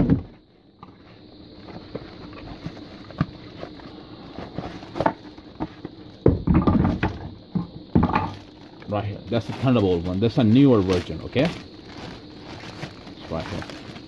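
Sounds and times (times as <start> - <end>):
cardboard knocks and scrapes: 1.7 - 7.1
plastic bag rustling: 8.2 - 14.0.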